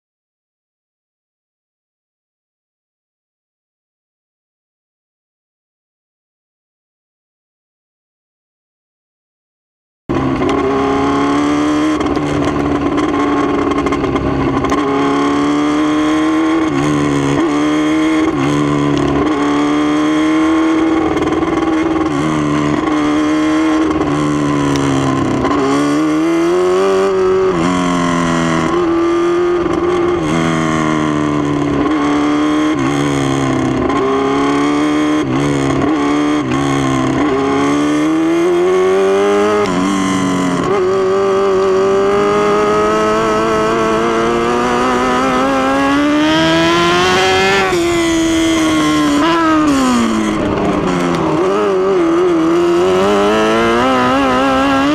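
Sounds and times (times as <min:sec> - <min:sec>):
race car engine revving: 0:10.1 - 0:54.9
wind noise: 0:39.3 - 0:54.9.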